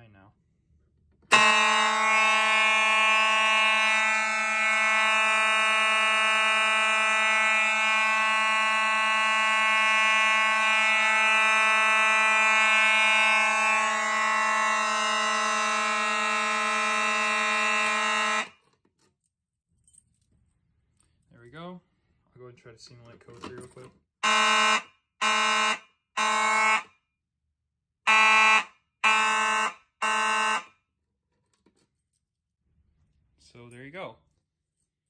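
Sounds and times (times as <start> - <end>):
fire alarm horns buzzing: 1.2 - 18.7, 24.2 - 27.1, 28.0 - 31.0.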